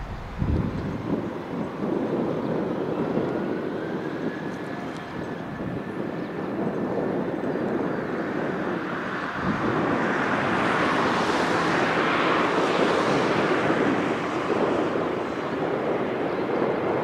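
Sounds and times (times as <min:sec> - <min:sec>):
jet engines whining: 0:00.0 - 0:01.7.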